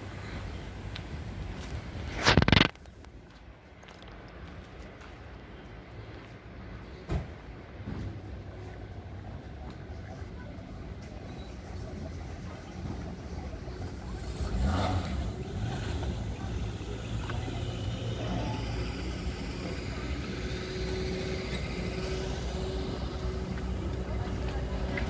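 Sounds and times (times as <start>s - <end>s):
vehicle engine running: 9.2s - 25.0s.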